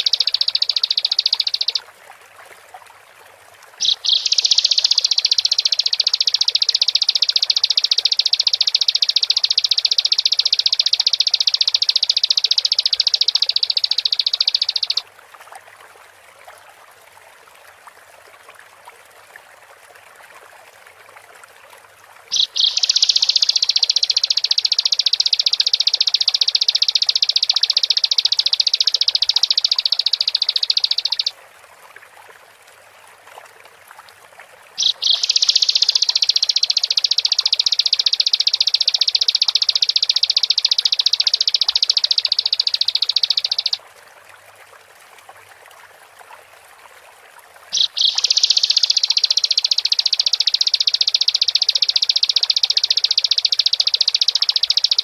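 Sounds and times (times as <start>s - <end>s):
bird singing chattering song: 0.0s - 1.8s, 3.8s - 15.0s, 22.3s - 31.3s, 34.8s - 43.8s, 47.8s - 55.0s.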